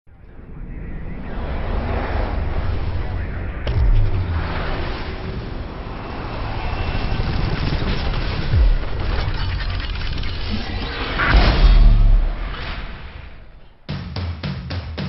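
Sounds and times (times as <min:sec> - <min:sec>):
whooshing rumble: 0:00.1 - 0:13.9
cinematic music: 0:00.2 - 0:15.0
deep booms: 0:01.8 - 0:06.6, 0:08.5 - 0:09.4, 0:11.1 - 0:13.6.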